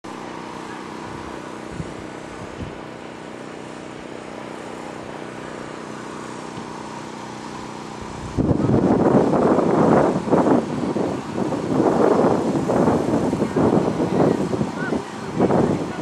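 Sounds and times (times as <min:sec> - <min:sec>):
motor drone: 0:00.1 - 0:16.0
wind rushing on microphone: 0:01.0 - 0:02.9, 0:07.9 - 0:16.0.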